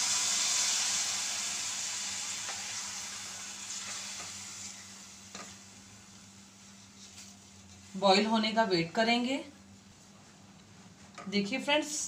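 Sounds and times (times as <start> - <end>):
water sizzling in hot pan: 0.0 - 8.1.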